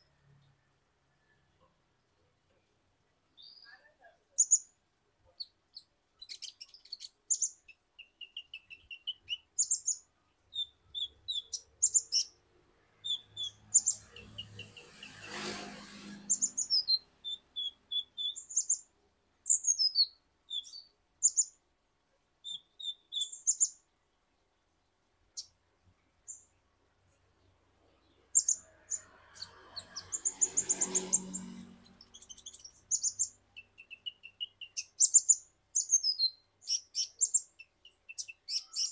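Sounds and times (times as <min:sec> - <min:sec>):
bird chirping and trilling: 0:03.4 - 0:04.7, 0:05.4 - 0:21.6, 0:22.4 - 0:23.9, 0:27.4 - 0:38.9.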